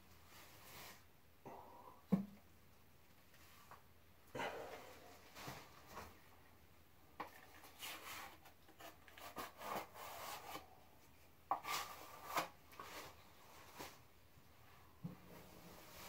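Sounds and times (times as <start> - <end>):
drywall knife scraping: 7.7 - 10.7.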